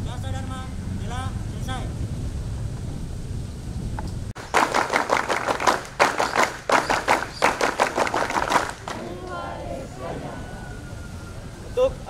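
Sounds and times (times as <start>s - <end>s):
crowd clapping in rhythm: 4.4s - 9.5s.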